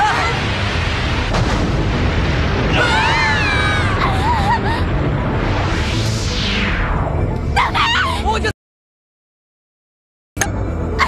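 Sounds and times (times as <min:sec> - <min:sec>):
rocks crashing and tumbling: 0:00.0 - 0:03.5
falling whoosh: 0:00.3 - 0:07.7
voices shouting and screaming: 0:02.7 - 0:04.1.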